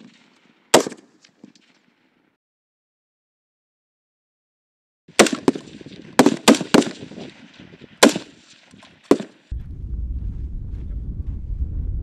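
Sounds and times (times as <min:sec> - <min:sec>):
rifle gunshots: 0:00.0 - 0:01.1, 0:05.1 - 0:09.5.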